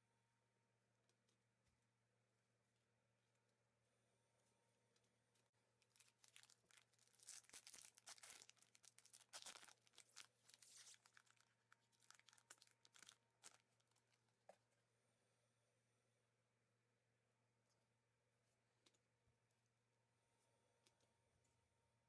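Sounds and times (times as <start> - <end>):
foil wrapper tearing and crinkling: 5.8 - 13.6.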